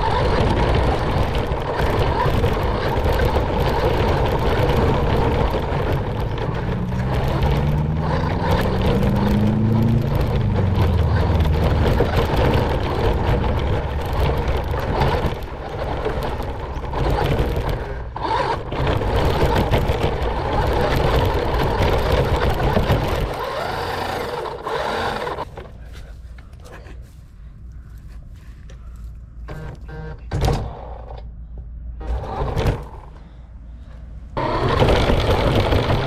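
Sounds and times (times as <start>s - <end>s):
toy car motor whine: 0.0s - 25.5s, 34.4s - 36.0s
tyres rumbling on dirt: 0.0s - 36.0s.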